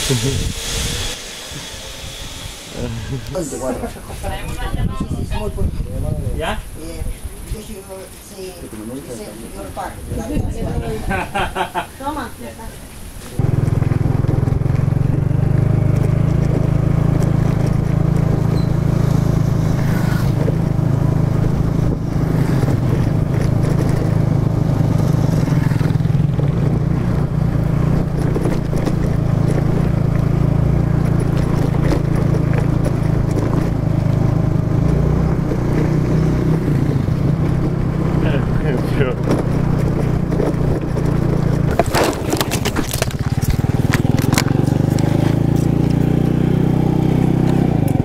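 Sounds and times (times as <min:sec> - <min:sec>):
wind and road noise: 0:00.0 - 0:48.0
scooter engine running: 0:13.4 - 0:48.0.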